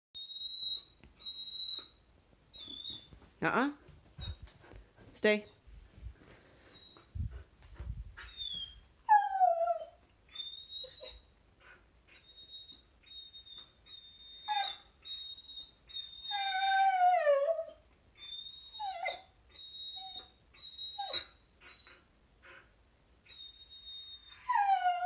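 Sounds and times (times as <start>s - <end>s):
dog whimpering: 0.2s - 1.9s, 2.5s - 3.1s, 8.2s - 11.2s, 12.1s - 22.6s, 23.3s - 25.0s
dog whining in high squeals: 0.2s - 3.2s, 6.8s - 7.1s, 8.2s - 11.2s, 12.1s - 22.0s, 23.3s - 25.0s.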